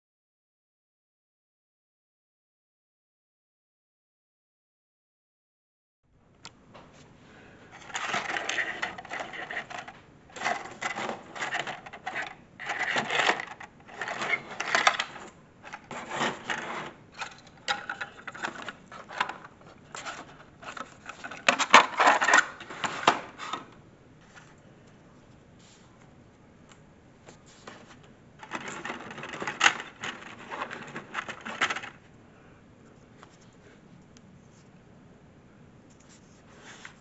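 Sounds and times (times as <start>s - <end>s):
plastic pieces clicking and rattling: 7.8s - 16.6s, 17.2s - 19.5s, 20.1s - 23.2s, 28.4s - 32.0s.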